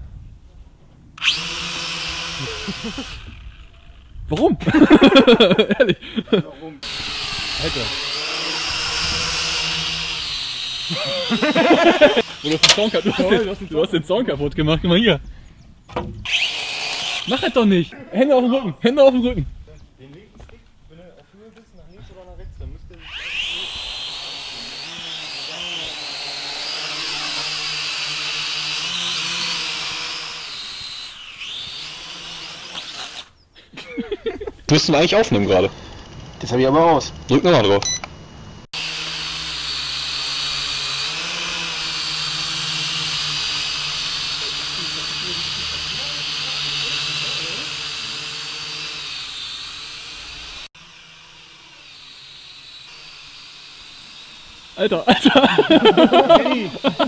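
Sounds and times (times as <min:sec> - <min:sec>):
toy drone motors whining: 0:01.2 - 0:04.2, 0:06.8 - 0:14.0, 0:16.2 - 0:17.8, 0:22.8 - 0:33.4, 0:38.7 - 0:57.0.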